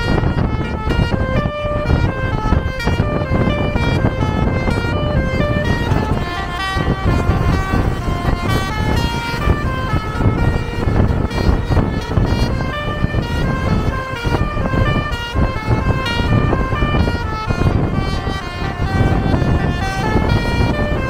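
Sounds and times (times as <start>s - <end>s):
electric melody horn tune: 0.0s - 21.0s
steady low rumble: 0.0s - 21.0s.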